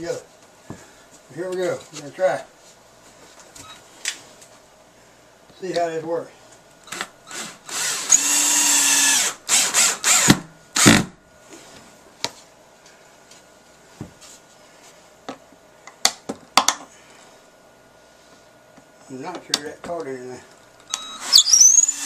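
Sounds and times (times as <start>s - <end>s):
drill clicks: 6.9s - 10.9s
cordless drill whining: 6.9s - 11.0s, 20.9s - 22.0s.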